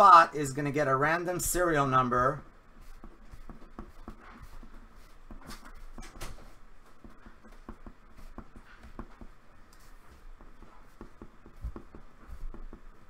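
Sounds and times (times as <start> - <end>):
pen scratching on paper: 2.7 - 6.1, 6.8 - 13.0.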